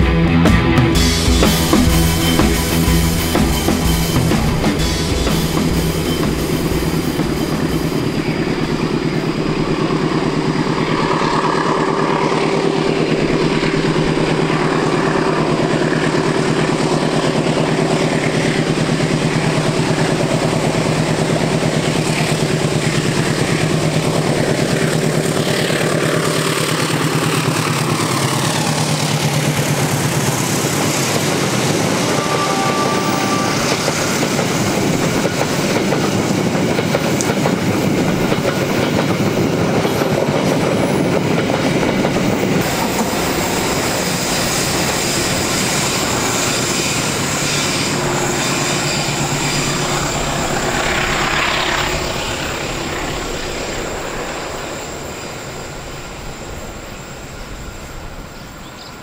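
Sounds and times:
music with drum beat: 0.0s - 8.2s
diesel locomotive passing: 0.0s - 59.0s.

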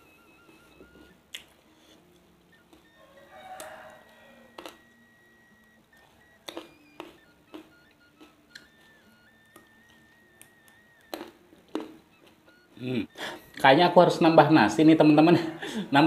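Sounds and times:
crunching raw vegetables: 6.0s - 9.7s.

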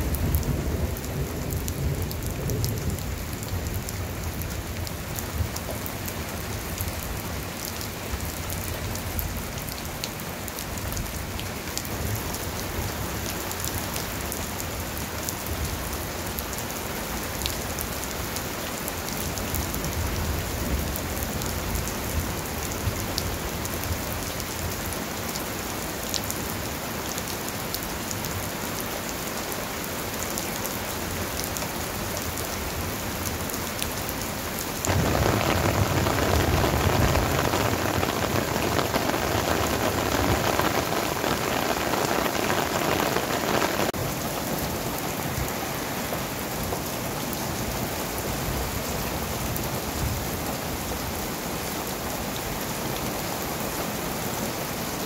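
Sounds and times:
heavy rain pouring: 0.0s - 55.0s
raindrops ticking: 34.9s - 44.0s.

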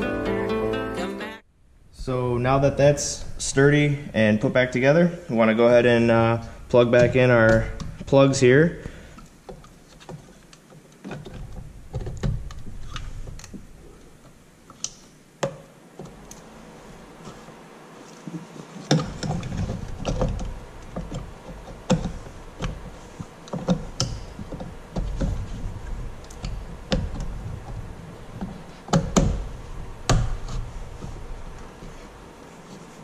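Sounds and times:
handling noise: 5.4s - 33.0s.

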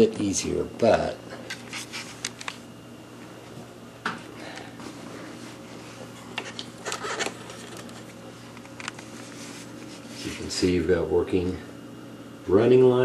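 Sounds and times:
steady low hum: 0.0s - 13.0s
camera handling clicks and rustles: 1.5s - 2.6s, 6.4s - 9.1s.

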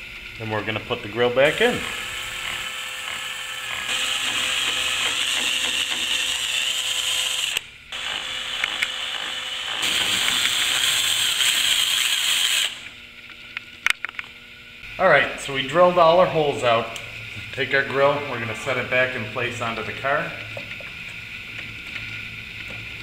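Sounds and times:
cordless drill running: 1.4s - 12.9s.

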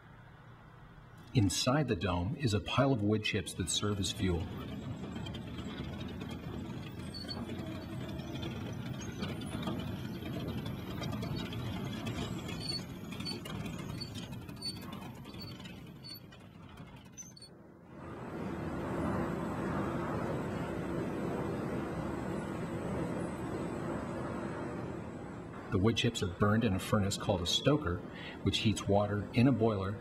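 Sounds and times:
auger conveyor clatter: 2.0s - 17.5s
rushing machine noise: 2.6s - 29.6s.

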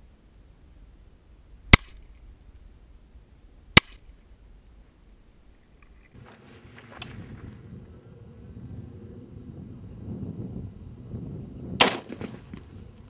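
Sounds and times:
pistol shots: 11.8s - 12.4s.

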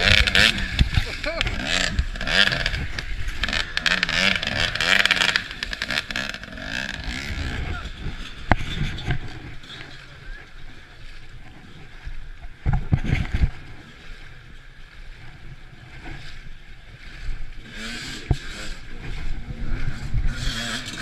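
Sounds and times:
motorcycle engine revving: 0.0s - 10.8s, 17.6s - 21.0s.

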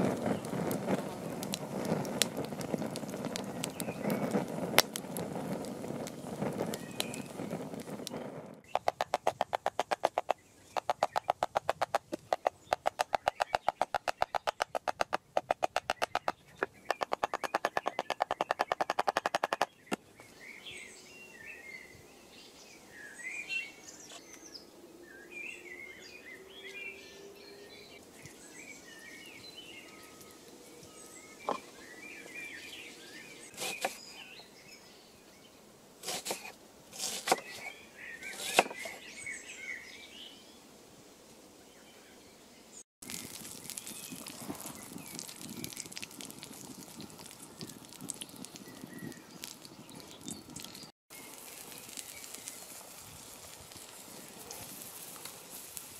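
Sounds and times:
birds chirping: 0.0s - 40.7s, 41.6s - 54.7s
hatchet striking wood: 8.8s - 19.7s, 38.4s - 38.8s
knife cutting on wooden board: 33.5s - 34.0s, 36.0s - 37.7s, 38.3s - 39.0s.

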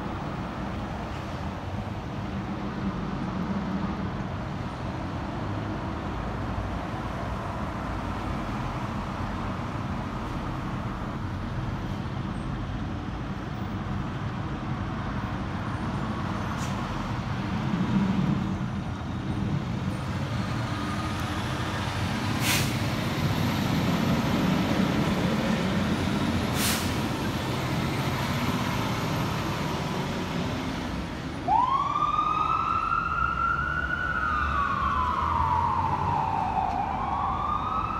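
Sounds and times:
fire engine diesel engines running: 0.0s - 37.9s
fire engine siren wailing: 31.4s - 37.9s.

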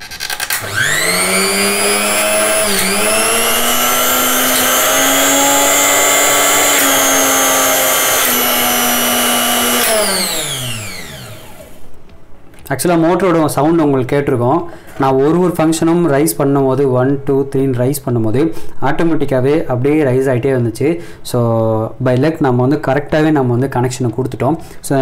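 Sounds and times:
mixer grinder motor whining: 0.0s - 12.0s.

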